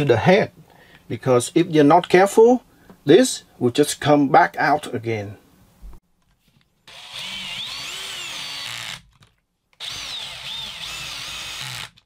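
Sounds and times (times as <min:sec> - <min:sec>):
power screwdriver motor whine: 0:06.9 - 0:09.0, 0:09.8 - 0:12.0.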